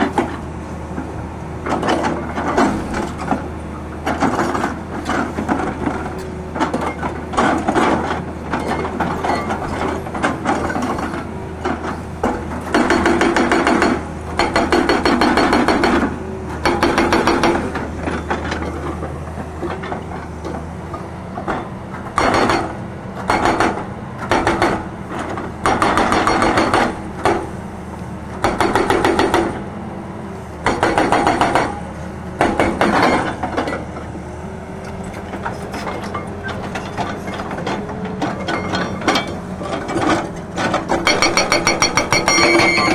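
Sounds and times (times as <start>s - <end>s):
excavator diesel engine running: 0.0s - 42.9s
hydraulic breaker hammering rock: 6.6s - 18.8s, 21.4s - 27.5s, 28.4s - 29.6s, 30.6s - 31.8s, 32.4s - 33.8s, 35.4s - 42.9s.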